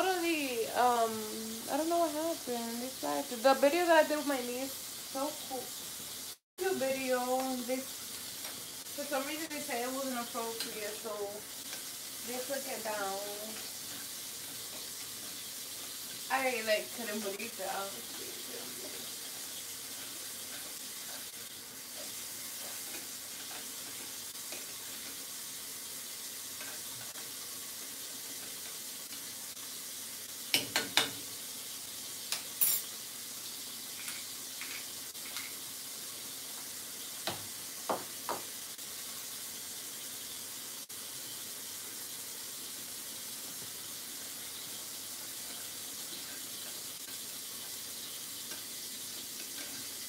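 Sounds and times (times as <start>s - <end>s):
food sizzling in a pan: 0.0s - 50.0s
pots and utensils clinking: 7.3s - 25.3s, 26.5s - 27.4s, 30.5s - 31.4s, 32.2s - 33.0s, 33.9s - 35.6s, 44.2s - 50.0s.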